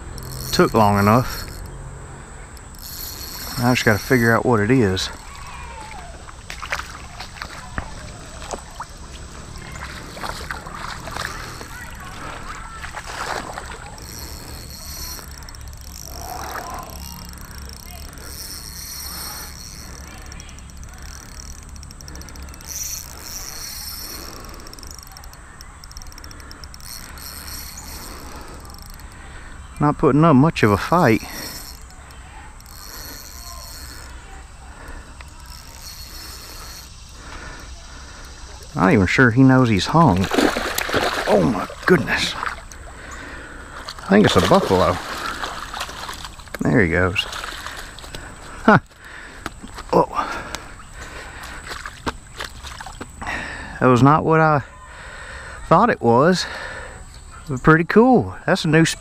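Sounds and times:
water sloshing and lapping: 0.0 - 29.8, 39.6 - 53.2
fishing tackle clicks: 0.0 - 53.2.

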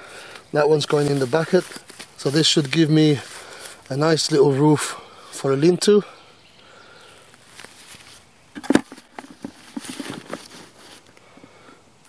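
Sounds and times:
tarp rustling: 0.1 - 4.0, 7.2 - 11.1
knocks in plastic bucket: 8.6 - 10.4.

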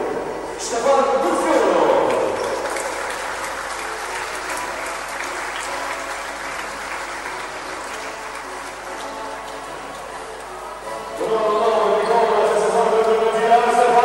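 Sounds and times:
crowd applauding: 1.3 - 11.1.

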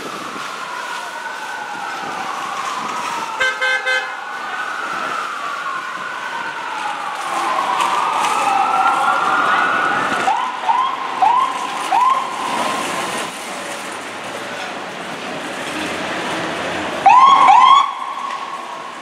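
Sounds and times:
electronic siren wailing and whooping: 17.0 - 18.4.

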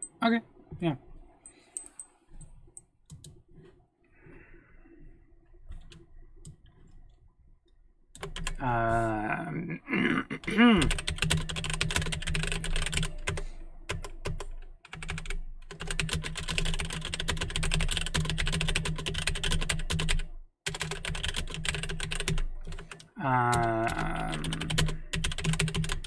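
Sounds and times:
fast keyboard typing: 8.2 - 8.6, 10.4 - 26.0.

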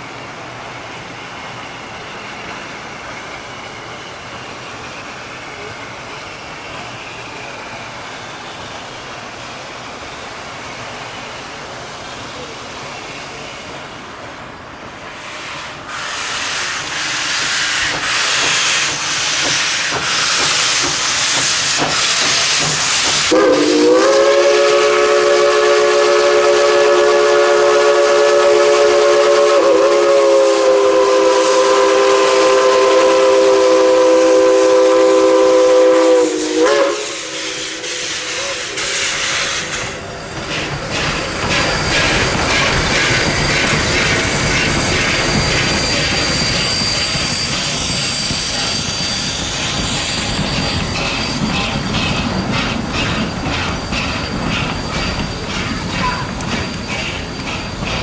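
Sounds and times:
steam hissing: 0.0 - 58.0
steam locomotive whistle: 15.1 - 40.0, 41.7 - 58.0.

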